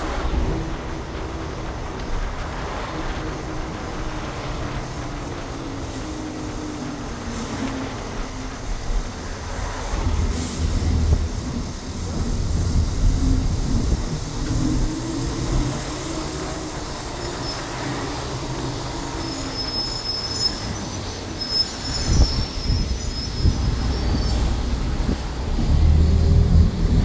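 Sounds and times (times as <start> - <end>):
bus engine drone: 0.0 - 27.0
road rumble: 0.0 - 27.0
air hiss: 3.4 - 27.0.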